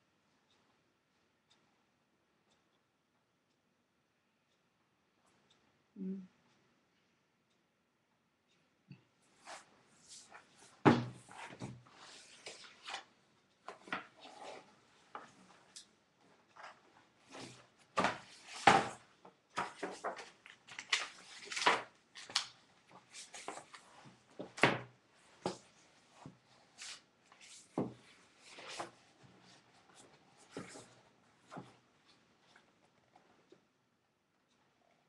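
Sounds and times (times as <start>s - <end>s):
book handling rustle: 9.4s - 13.1s, 13.7s - 33.3s
book pages turning: 16.6s - 19.0s, 19.6s - 24.2s, 26.8s - 29.0s.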